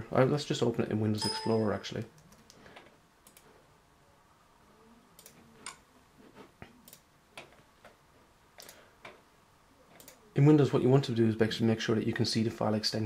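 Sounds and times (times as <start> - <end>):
computer mouse clicks: 2.2 - 3.5, 5.2 - 5.8, 6.8 - 7.6, 8.6 - 9.2, 9.9 - 10.2.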